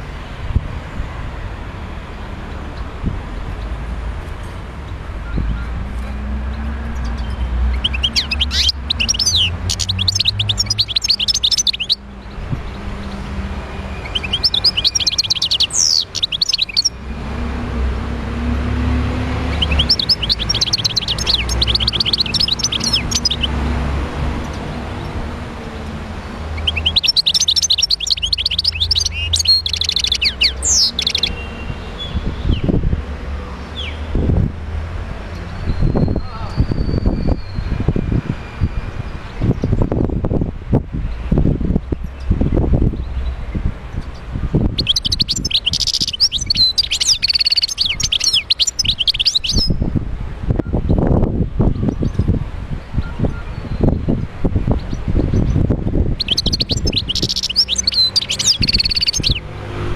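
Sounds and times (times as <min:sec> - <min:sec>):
goldfinch twittering trills: 0:06.5 - 0:13.2, 0:13.8 - 0:17.0, 0:19.3 - 0:23.6, 0:26.5 - 0:32.6, 0:44.8 - 0:49.8, 0:54.8 - 0:59.5.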